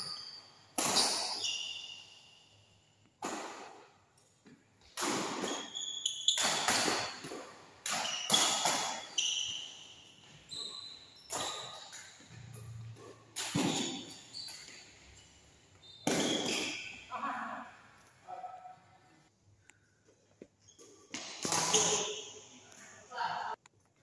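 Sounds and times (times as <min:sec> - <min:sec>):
shoes squeaking on court: 0:00.0 - 0:02.4, 0:04.8 - 0:07.2, 0:07.9 - 0:17.1, 0:20.3 - 0:22.5
rackets hitting shuttlecock: 0:00.7 - 0:02.1, 0:03.2 - 0:03.9, 0:04.8 - 0:09.7, 0:11.3 - 0:14.9, 0:16.0 - 0:17.0, 0:21.0 - 0:22.3.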